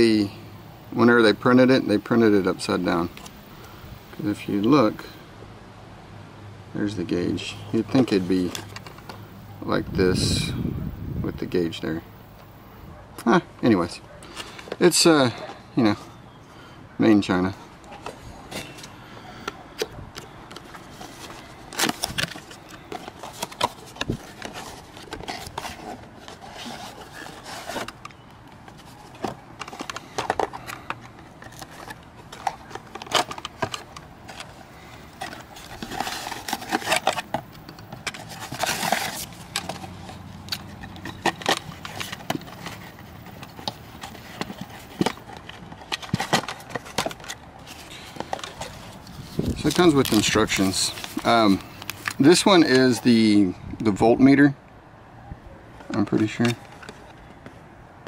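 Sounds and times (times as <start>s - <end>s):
cardboard scraping and clicking: 17.9s - 53.0s, 55.8s - 57.6s
packaging rustling: 17.9s - 53.2s
paper sheet rustling: 20.6s - 28.0s, 28.7s - 53.2s.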